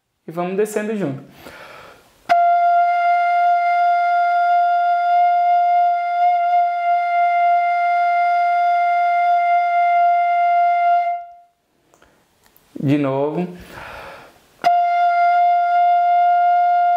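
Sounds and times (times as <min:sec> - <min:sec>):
fife playing a long held note: 0:02.3 - 0:11.5, 0:14.6 - 0:16.9.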